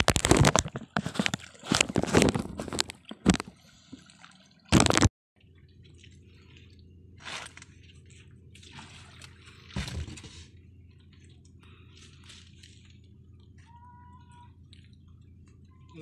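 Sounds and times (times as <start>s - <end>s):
low steady hum: 0.0s - 16.0s
water dripping and trickling: 10.8s - 16.0s.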